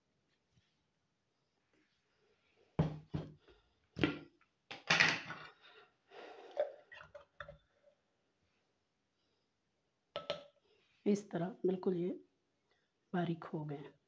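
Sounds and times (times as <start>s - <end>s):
glass jug knocking: 2.8s - 3.3s.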